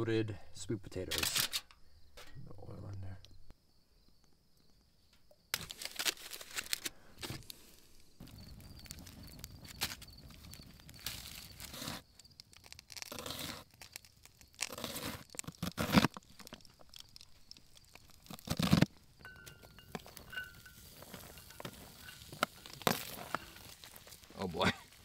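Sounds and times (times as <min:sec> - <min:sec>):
knife crunching through onion: 0:10.9 - 0:18.9.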